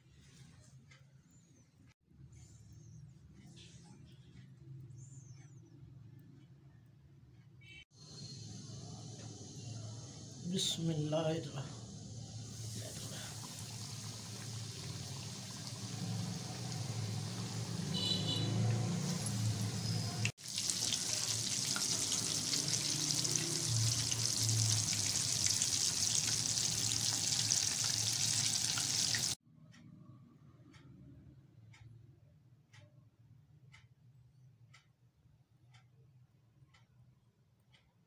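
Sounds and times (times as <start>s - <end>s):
chicken wings sizzling in oil: 8.0s - 29.4s.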